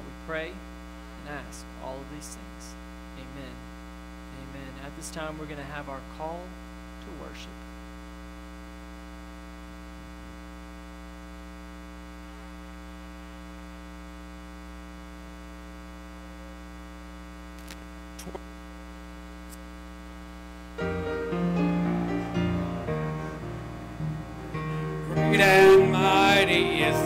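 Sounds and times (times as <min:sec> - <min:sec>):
electrical mains hum: 0:00.0 - 0:27.0
instrumental music: 0:20.8 - 0:27.0.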